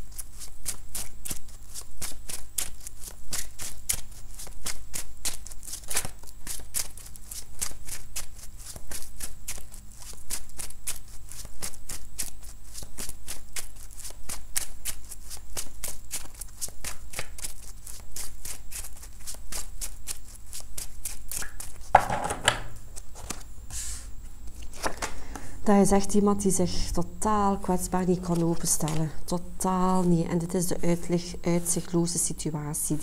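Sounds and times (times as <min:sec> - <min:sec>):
cards being shuffled: 0:00.1 - 0:25.2, 0:28.1 - 0:29.2.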